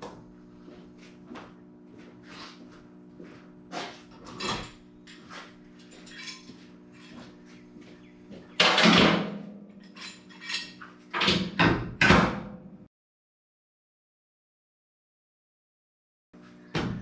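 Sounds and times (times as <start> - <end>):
steady low hum: 0.0 - 11.2
steel clamps clanking and scraping: 4.1 - 7.3, 9.8 - 11.4
loud knocks on metal: 11.3 - 12.6.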